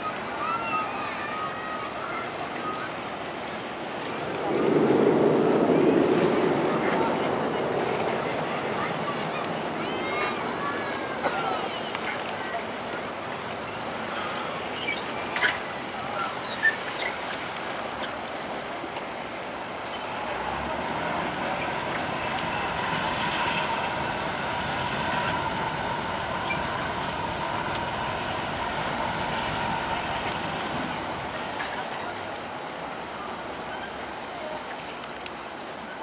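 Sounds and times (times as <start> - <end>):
ferry engines droning: 17.8 - 35.4.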